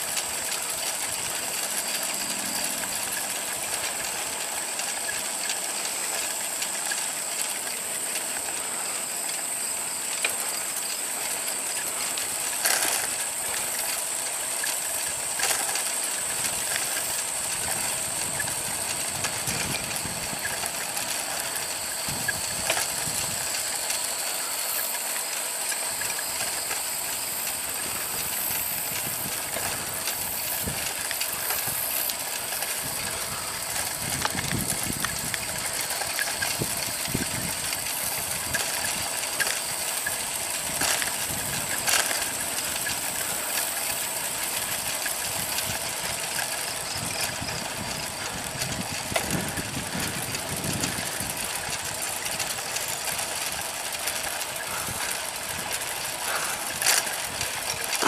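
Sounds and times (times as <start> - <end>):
bicycle rolling on asphalt: 0.0 - 58.0
small clicks and rattles: 0.0 - 58.0
wind on microphone: 22.0 - 23.4, 32.8 - 35.8, 36.5 - 39.1, 46.8 - 52.0.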